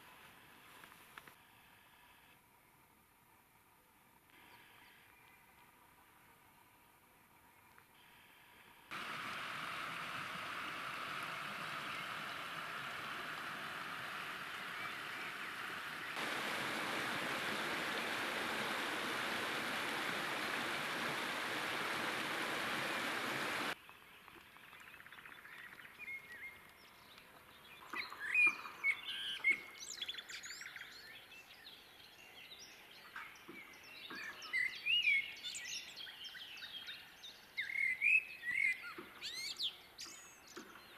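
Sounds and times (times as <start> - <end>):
river water rushing: 8.9 - 23.8
songbirds chirping and warbling: 9.0 - 40.9.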